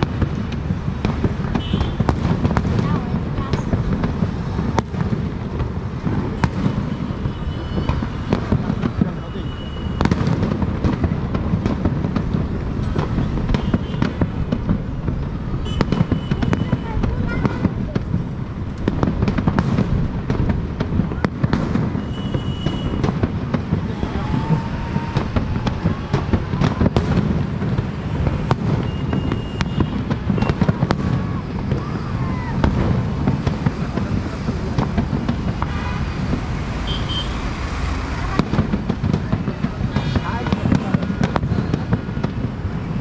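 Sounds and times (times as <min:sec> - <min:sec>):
crackling rumble of fireworks: 0:00.0 - 0:43.0
firework bangs: 0:00.0 - 0:43.0.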